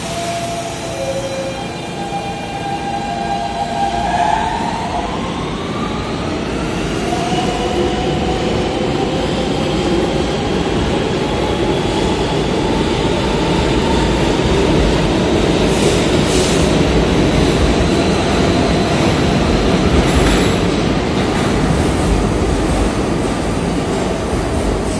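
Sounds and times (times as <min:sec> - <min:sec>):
wheels rumbling on rail: 0:06.5 - 0:24.9.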